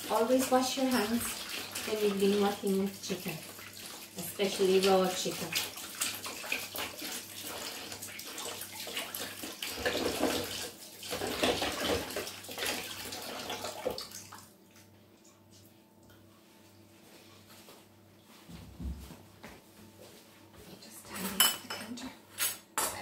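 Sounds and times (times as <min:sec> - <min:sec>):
tap water splashing into sink: 0:04.7 - 0:14.4.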